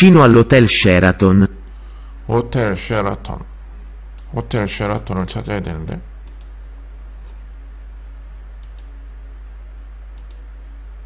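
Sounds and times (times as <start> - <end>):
low electrical hum: 0.0 - 11.0
computer mouse clicking: 6.2 - 6.6, 8.6 - 9.0, 10.1 - 10.5.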